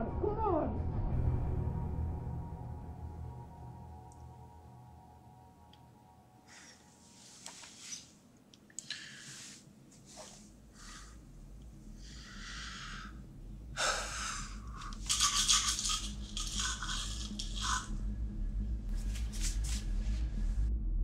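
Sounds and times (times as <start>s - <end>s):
low drone: 0.0s - 21.0s
man breathing hard: 8.8s - 15.2s.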